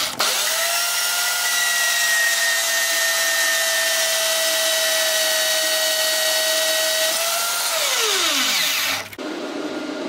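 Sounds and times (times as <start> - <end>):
bandsaw cutting steel tubing: 0.0 - 9.2
saw motor winding down: 7.6 - 9.2.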